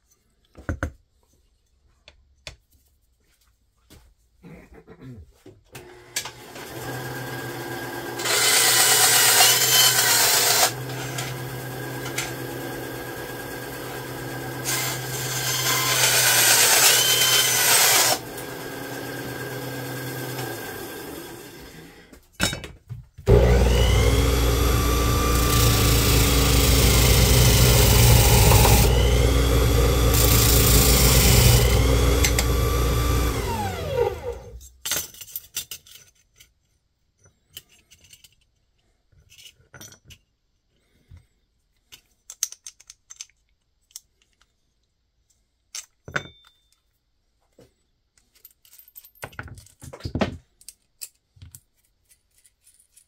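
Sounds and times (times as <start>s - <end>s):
electric drill boring: 5.8s - 22.1s, 23.3s - 34.6s
metal hardware clinking: 34.6s - 36.6s, 45.7s - 46.9s, 48.3s - 53.0s.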